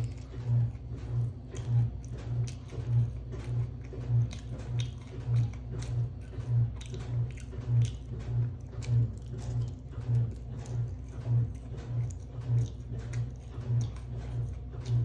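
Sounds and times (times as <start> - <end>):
chewing crisp fried chicken: 0.0 - 15.0.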